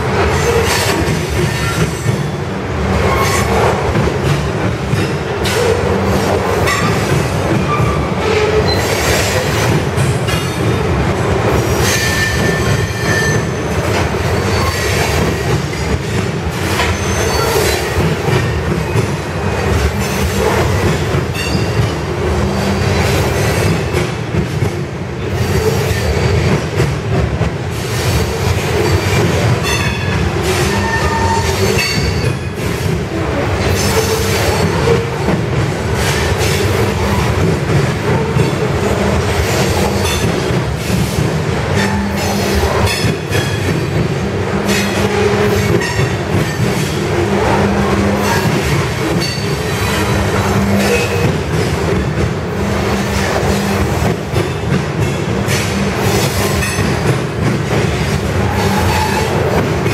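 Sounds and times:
train wheels rumbling on rail: 0.0 - 59.9
high-pitched wheel squeals: 30.7 - 32.0.

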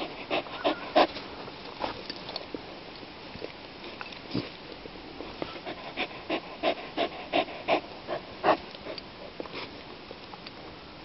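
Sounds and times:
dog breathing: 0.0 - 1.3, 5.4 - 9.0.

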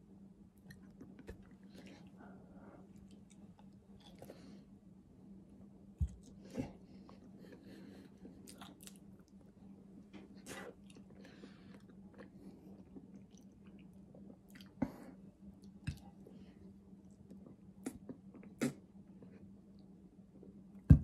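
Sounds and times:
person chewing: 2.8 - 4.5, 8.3 - 9.4.

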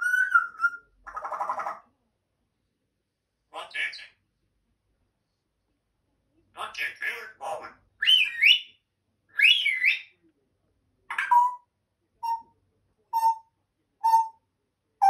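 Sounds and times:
parrot whistling: 0.0 - 0.9, 8.0 - 8.7, 9.4 - 10.1, 12.2 - 12.5, 13.2 - 14.4.

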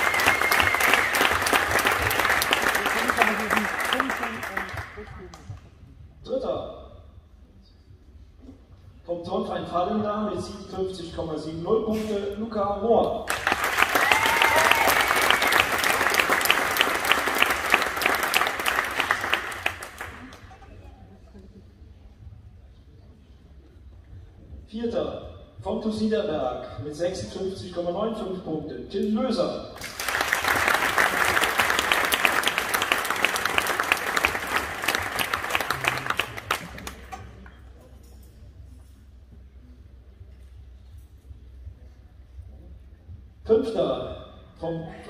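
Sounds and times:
audience applauding: 0.0 - 5.1, 13.3 - 20.6, 29.8 - 37.5.

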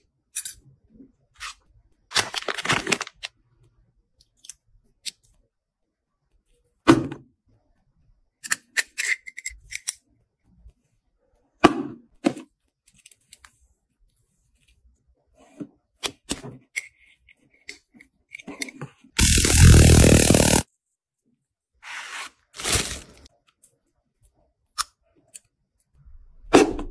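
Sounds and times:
loud rasping rip: 19.2 - 20.6.

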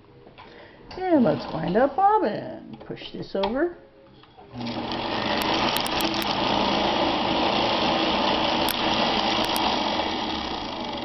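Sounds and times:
sewing machine motor running: 4.6 - 11.0.

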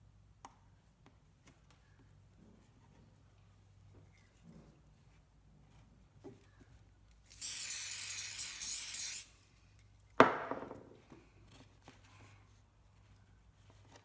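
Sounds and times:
aerosol spray hiss: 7.3 - 9.4
can knocking on wooden bench: 10.2 - 10.8.

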